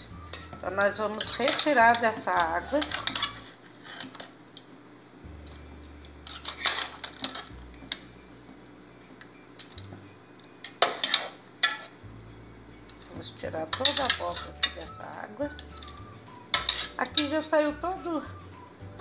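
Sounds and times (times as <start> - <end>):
skimmer clinking against metal pot: 12.9 - 14.9.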